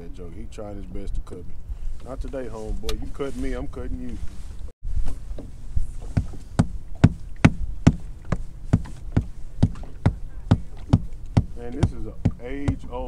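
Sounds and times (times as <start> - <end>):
tapping knocks on boat hull: 6.1 - 13.0.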